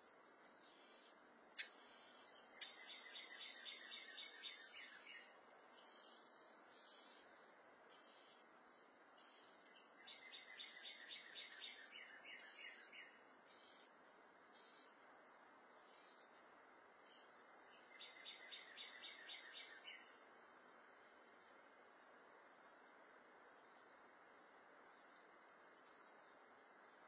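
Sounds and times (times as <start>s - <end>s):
rapid bird trills: 0.0s - 15.0s, 15.9s - 16.3s, 17.0s - 20.2s, 25.1s - 26.3s.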